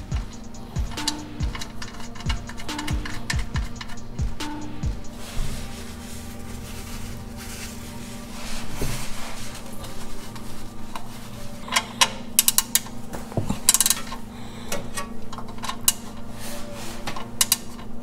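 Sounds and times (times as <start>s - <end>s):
socket ratchet clicking: 0.0s - 4.3s
low hum: 0.0s - 18.0s.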